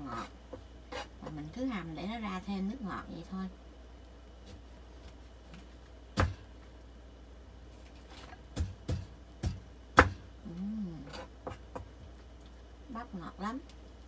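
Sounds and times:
low steady hum: 0.0s - 14.0s
person humming: 10.4s - 11.2s.

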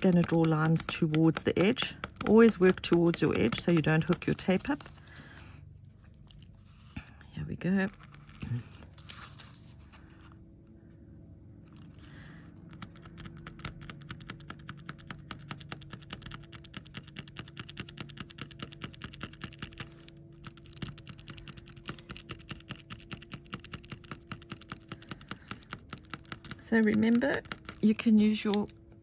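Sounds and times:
pen ticking strokes on metal tape: 0.0s - 4.6s
faint steady hum: 0.0s - 29.0s.

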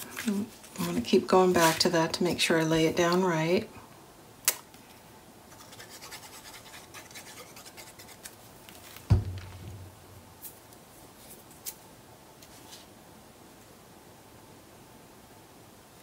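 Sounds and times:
glue nozzle scratching on paper: 5.5s - 8.3s
loud thump: 9.1s - 10.4s.

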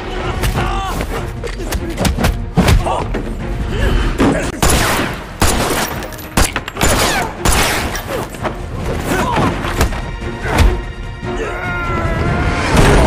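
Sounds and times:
fighters grunting and shouting: 0.0s - 4.6s, 9.0s - 13.0s.

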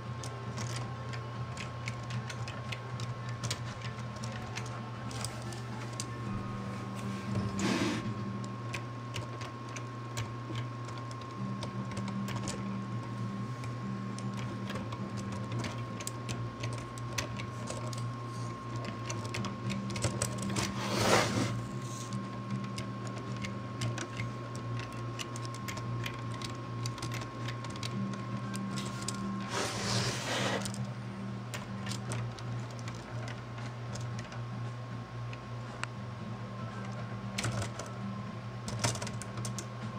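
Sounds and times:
small electric motors whirring: 13.8s - 30.9s.

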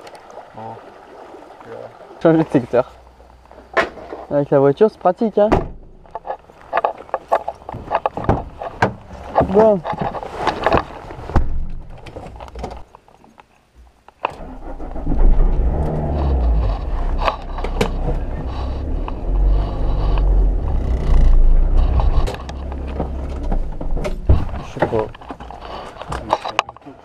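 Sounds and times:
car door shutting: 5.5s - 6.0s
car engine starting and running: 14.3s - 24.7s.

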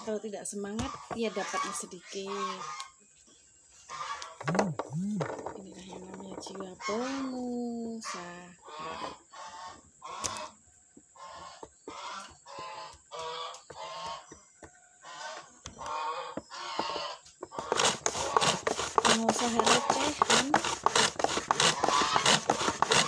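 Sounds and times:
geese honking: 3.9s - 4.6s, 6.8s - 7.4s, 11.2s - 14.3s, 15.0s - 20.7s
shallots scraping across slicer: 17.7s - 23.0s.

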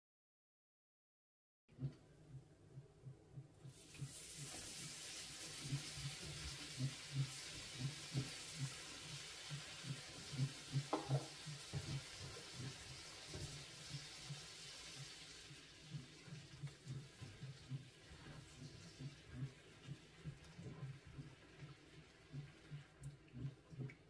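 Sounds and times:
garlic sizzling in a pan: 3.7s - 20.8s
spatula knocking against pan: 10.7s - 12.0s.

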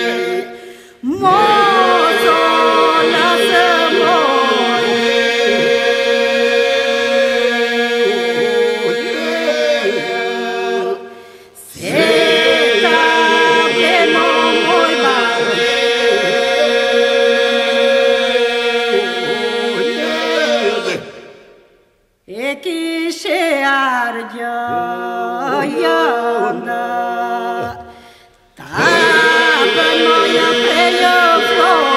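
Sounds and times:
held vocal drone: 0.0s - 11.0s, 28.6s - 31.9s
polyphonic folk singing a cappella: 0.0s - 21.6s, 22.3s - 31.9s.

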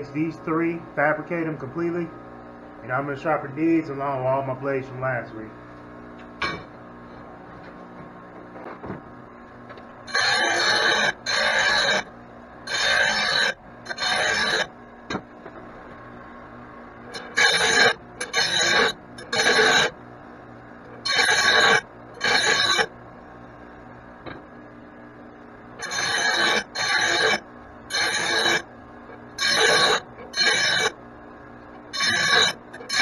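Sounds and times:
power tool bursts: 17.1s - 19.9s, 29.4s - 31.0s, 32.0s - 33.0s.

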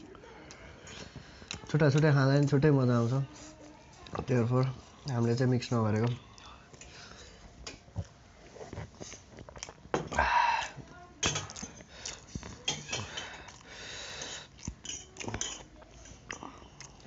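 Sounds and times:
fork clinking on steel plates: 11.2s - 13.4s, 14.6s - 15.7s.

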